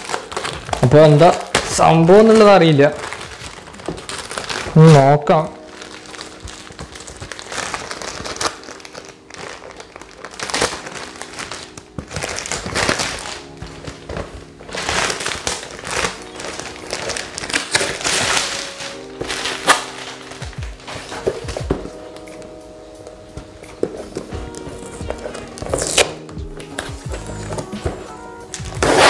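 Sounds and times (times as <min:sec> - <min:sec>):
background music: 0:00.0 - 0:29.0
wrapping paper ripping: 0:00.0 - 0:29.0.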